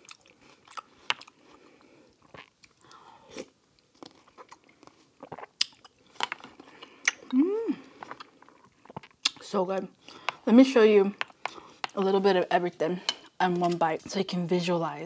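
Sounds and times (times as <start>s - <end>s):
person chewing and crunching: 0.0s - 10.4s, 11.2s - 12.0s
person humming: 7.2s - 8.0s.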